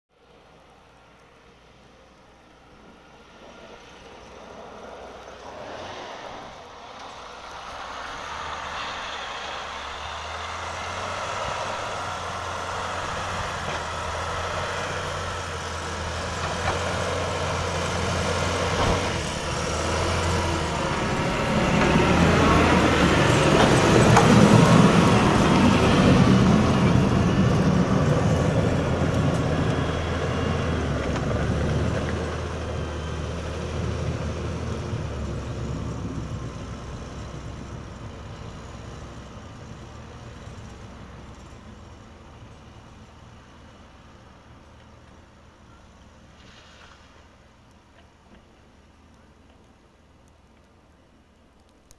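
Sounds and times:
tractor diesel engine running: 6.6s - 46.8s.

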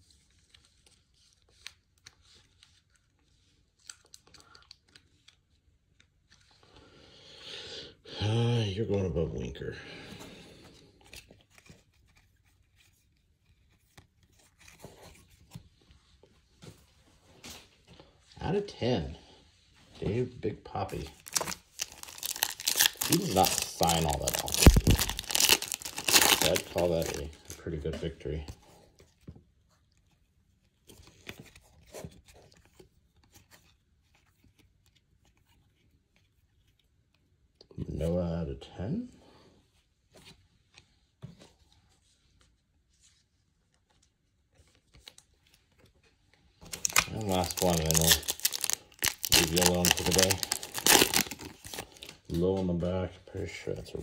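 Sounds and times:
trading cards rustling and scraping: 10.6s - 17.9s, 20.8s - 29.2s, 40.1s - 52.5s
trading cards clicking and rustling: 20.9s - 27.6s, 46.6s - 52.2s.

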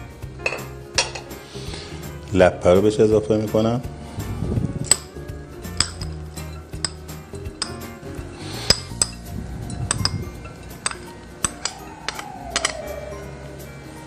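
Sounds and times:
soft background music: 0.0s - 14.0s
metal spoon clinking on bowls: 0.4s - 1.3s, 4.8s - 12.9s.

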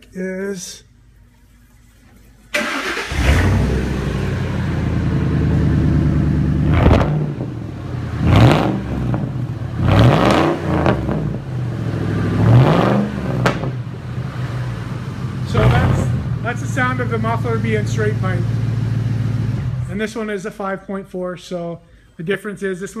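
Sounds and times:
loud engine exhaust revving: 2.7s - 19.9s.

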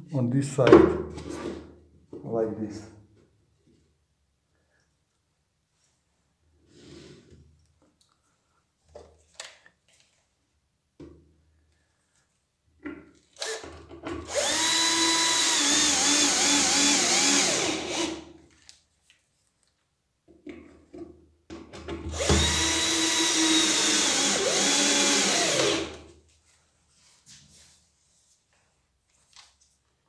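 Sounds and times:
cordless drill motor whine: 14.3s - 18.2s, 22.2s - 25.9s.

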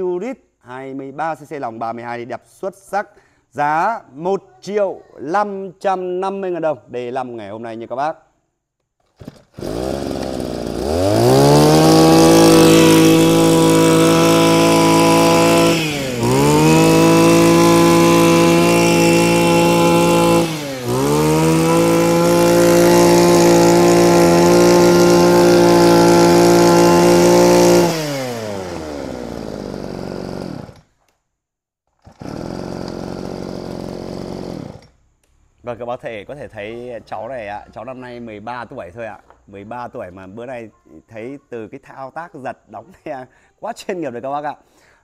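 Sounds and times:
brush cutter engine revving: 9.1s - 30.9s, 32.0s - 35.0s.

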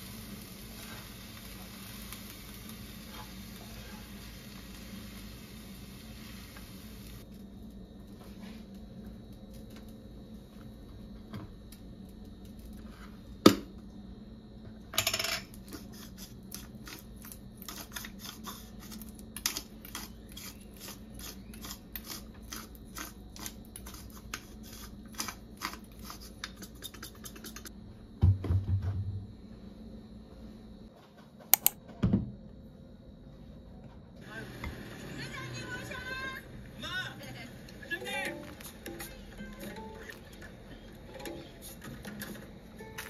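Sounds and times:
spice grinder clicking: 31.6s - 31.8s.

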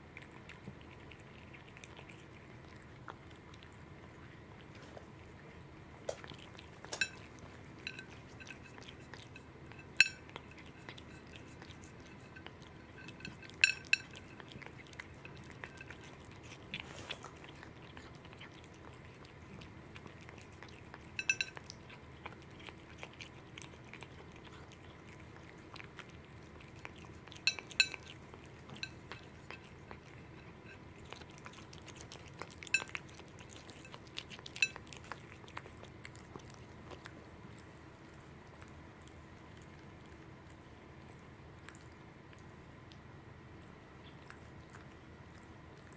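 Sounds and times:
cat chewing: 0.0s - 45.9s
metal charm clinking on plate: 9.9s - 10.2s, 21.2s - 21.6s.

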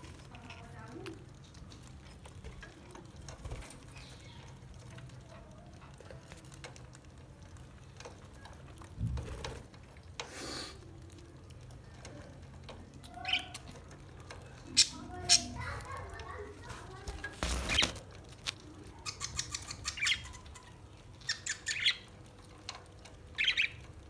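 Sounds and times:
rustling bursts: 16.6s - 18.4s
budgerigars chattering softly: 23.4s - 23.8s.

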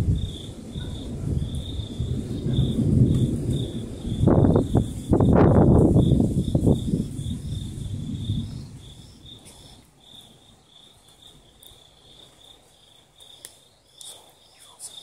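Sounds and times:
thunder rumble: 0.0s - 11.6s
crickets chirping: 0.0s - 15.0s.

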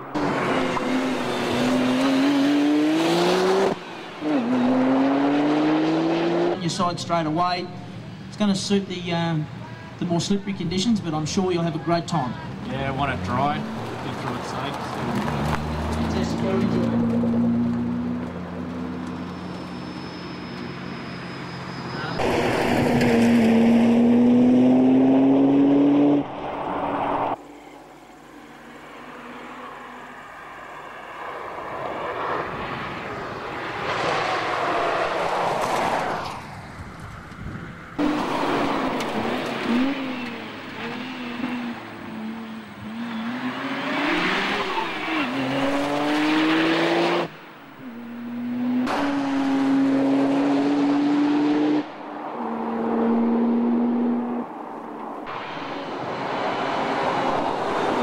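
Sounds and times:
racing car engine revving: 0.0s - 6.6s, 38.0s - 54.5s.

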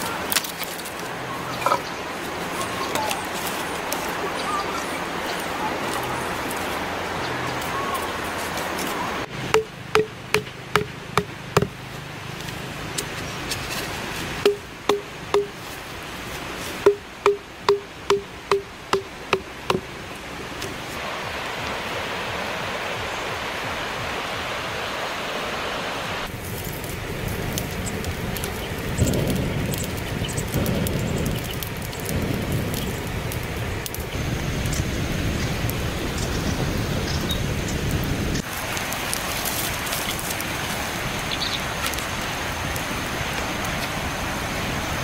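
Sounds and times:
steady rushing hiss: 0.0s - 45.0s
bamboo chopping knocks: 9.5s - 11.8s, 14.4s - 15.6s, 16.9s - 19.9s.

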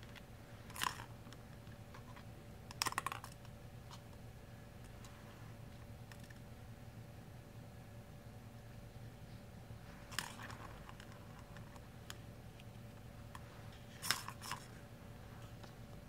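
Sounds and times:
plastic ball rattling in track toy: 0.7s - 1.1s, 2.7s - 3.4s, 10.1s - 11.5s, 14.0s - 14.7s.

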